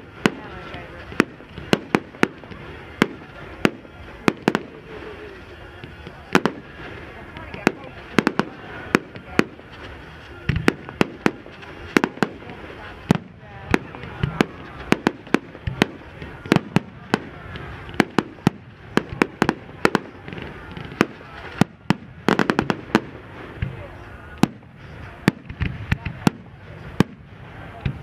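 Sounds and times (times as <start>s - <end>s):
fireworks cracking and banging: 0.0s - 28.0s
deep firework thuds: 5.7s - 28.0s.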